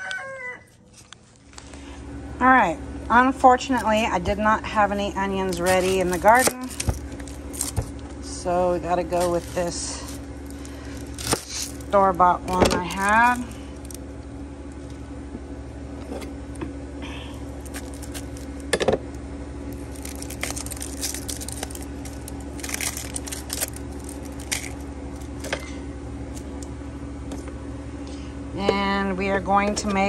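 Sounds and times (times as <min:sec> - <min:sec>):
steady low hum: 0:00.0 - 0:30.0
onion skin crackling and rustling: 0:03.6 - 0:14.2, 0:17.4 - 0:18.8, 0:19.7 - 0:26.6.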